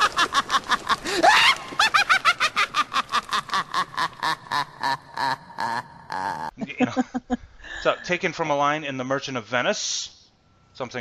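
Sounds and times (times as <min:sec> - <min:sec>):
person cackling laughter: 0:00.0 - 0:07.4.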